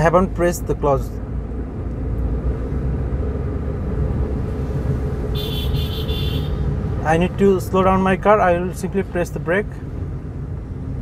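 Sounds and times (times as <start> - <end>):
car engine and road noise: 0.0 - 11.0
high-pitched horn toots: 5.3 - 6.6.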